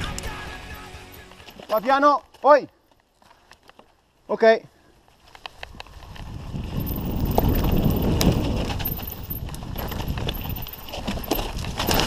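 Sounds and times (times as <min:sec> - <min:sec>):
rumble of tyres and wind: 0:05.0 - 0:12.0
bike rattling over bumps: 0:05.3 - 0:12.0.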